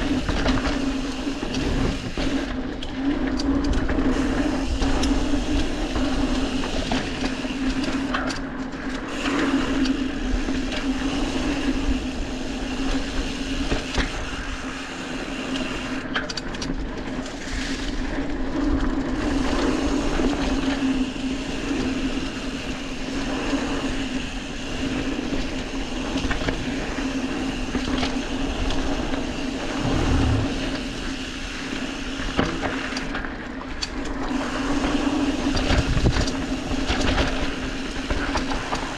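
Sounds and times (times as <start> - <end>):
bike wheels humming: 29.3 - 31.4
wind noise on microphone: 29.5 - 31.3.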